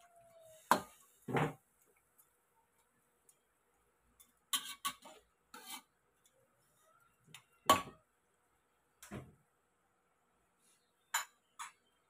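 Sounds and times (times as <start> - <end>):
metal spatula scraping a wok: 4.5 - 6.0.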